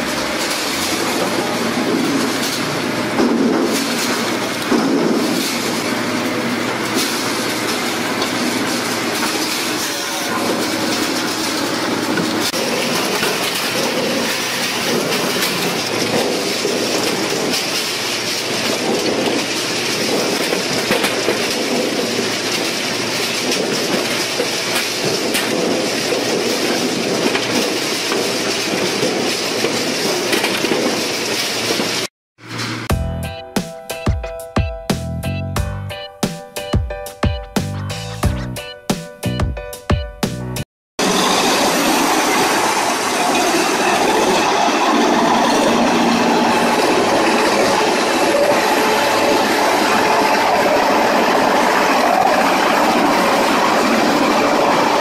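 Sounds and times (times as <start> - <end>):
wood clattering on metal: 6.8 - 32.1.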